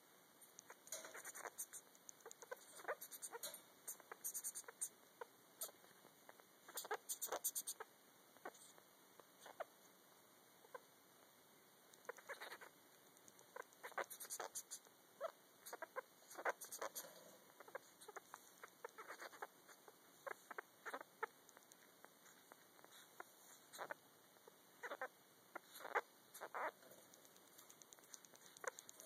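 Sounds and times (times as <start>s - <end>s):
sugar glider chirps and clicks: 0.4s - 9.7s, 11.9s - 29.0s.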